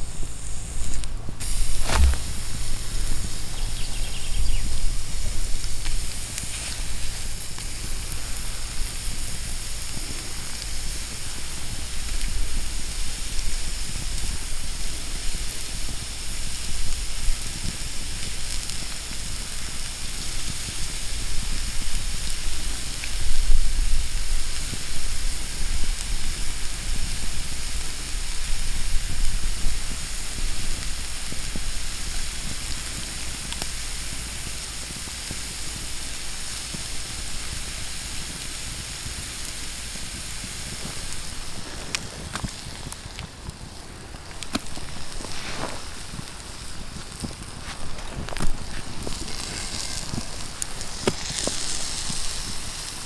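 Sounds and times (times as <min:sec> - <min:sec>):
chicken sizzling on hot rock: 0:00.0 - 0:53.0
sharp tap: 0:01.8 - 0:02.3.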